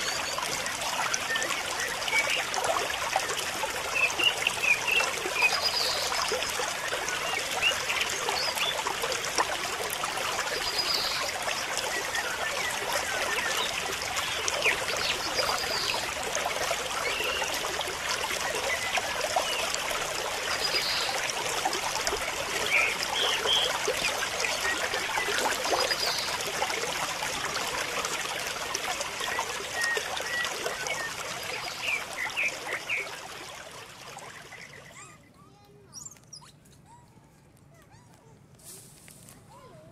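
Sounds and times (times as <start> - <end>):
trickling water: 0.0 - 36.9.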